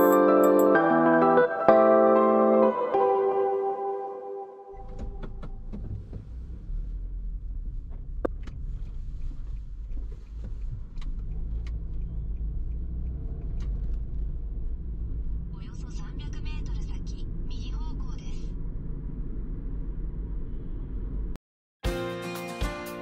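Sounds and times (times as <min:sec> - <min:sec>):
car road and engine rumble: 0:04.7 - 0:21.4.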